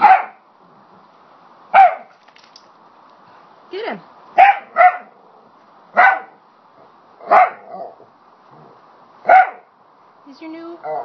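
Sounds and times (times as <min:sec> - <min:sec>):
dog barking: 0:00.0 - 0:00.4, 0:01.7 - 0:02.1, 0:04.4 - 0:05.1, 0:06.0 - 0:06.4, 0:07.2 - 0:08.0, 0:09.2 - 0:09.7.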